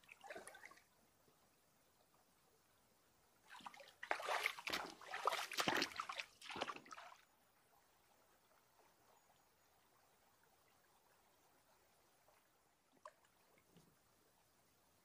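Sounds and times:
boots splashing through water: 3.5s - 7.1s.

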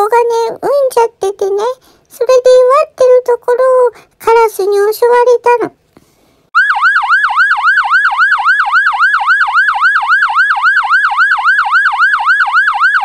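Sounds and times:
warbling electronic alarm: 6.6s - 13.0s.

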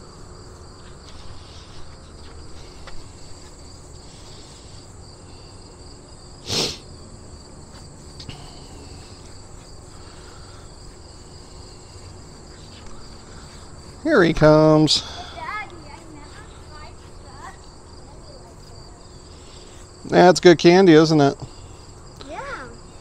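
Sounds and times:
insects trilling: 0.0s - 23.0s.

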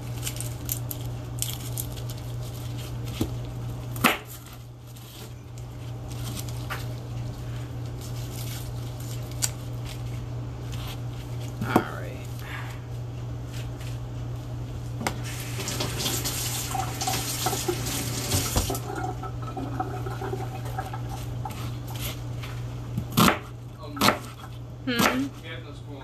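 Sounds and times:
knife chopping onion on board: 4.0s - 4.4s, 23.0s - 25.4s.

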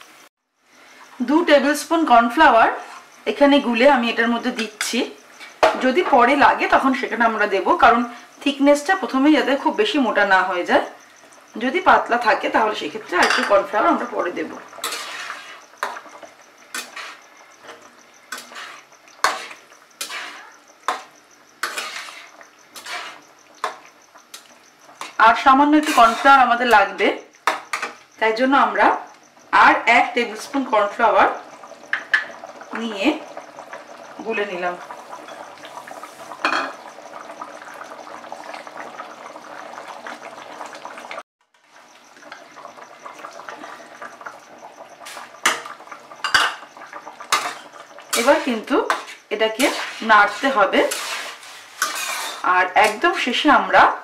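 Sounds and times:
gravy bubbling in a pan: 0.1s - 28.2s, 28.9s - 54.0s
spatula scraping a pan: 2.7s - 3.2s, 14.7s - 28.0s, 45.0s - 53.2s.

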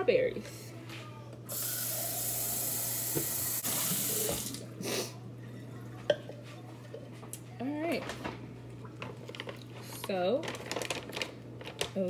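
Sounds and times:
tap water running: 1.5s - 4.7s.

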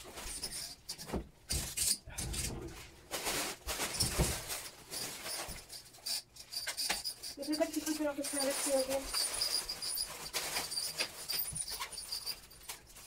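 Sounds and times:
plastic bag crinkling: 2.8s - 5.8s, 7.3s - 13.0s.

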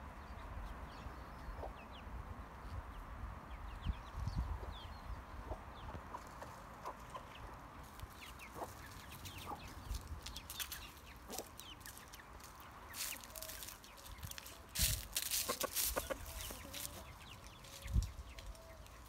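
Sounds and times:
chickens clucking: 1.4s - 2.0s, 3.8s - 19.0s.

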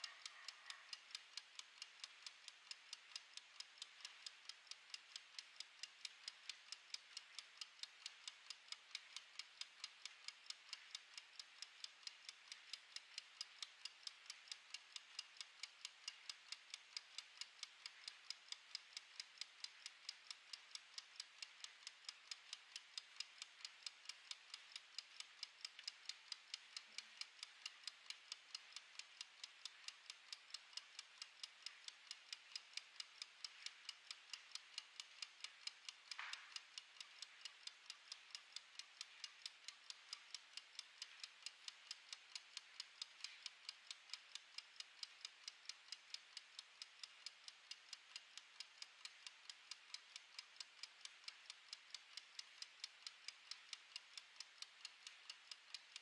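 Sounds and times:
kitchen timer ticking: 0.0s - 56.0s.

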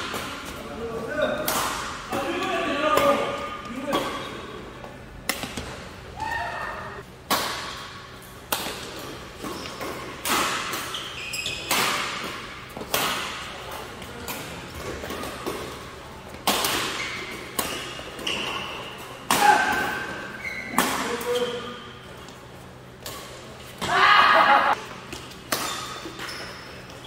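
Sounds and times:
rackets hitting shuttlecock: 1.4s - 4.4s, 7.2s - 21.5s, 25.1s - 26.3s
sneaker squeaks on court floor: 9.4s - 12.2s, 16.7s - 19.0s, 19.9s - 22.0s, 25.4s - 27.0s.

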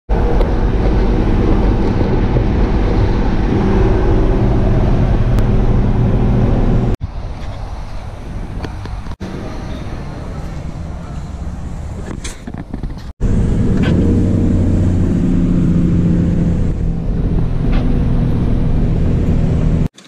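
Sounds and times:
wind on microphone: 0.1s - 9.6s
road noise: 0.1s - 20.0s
vehicle engine drone: 0.1s - 20.0s.

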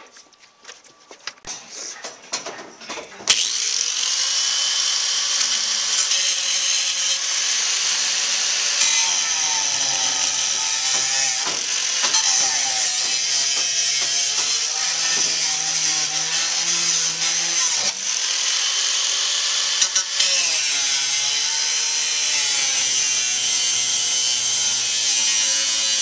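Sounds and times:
angle grinder cutting metal: 3.3s - 26.0s.

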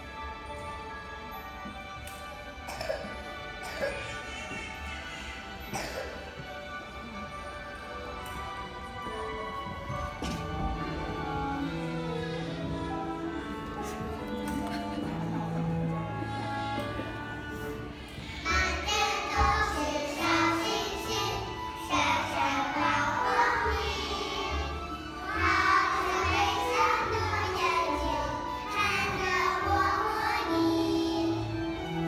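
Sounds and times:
children singing together: 18.4s - 32.0s.

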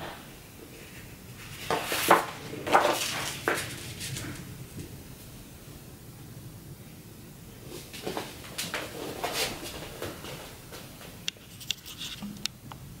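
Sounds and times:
paper poster rustling: 1.4s - 4.5s, 7.7s - 12.3s.

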